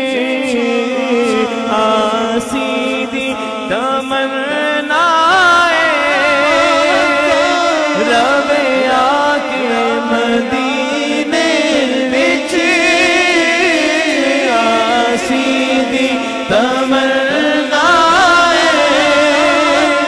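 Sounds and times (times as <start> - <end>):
man singing into a microphone: 0.0 - 20.0
singer breathing: 16.2 - 16.5.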